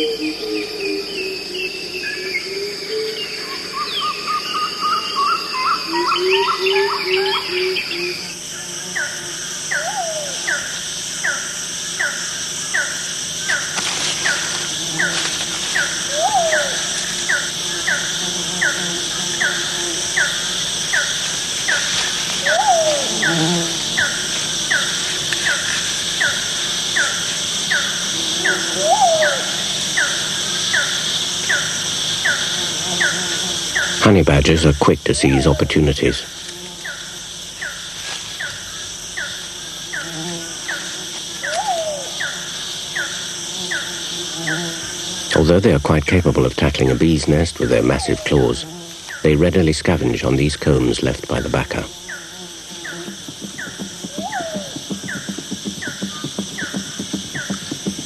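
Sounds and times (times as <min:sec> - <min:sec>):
steady insect hiss: 0:00.0 - 0:58.0
low rising and falling call: 0:16.1 - 0:17.4, 0:22.4 - 0:23.4, 0:28.4 - 0:29.6, 0:54.1 - 0:57.6.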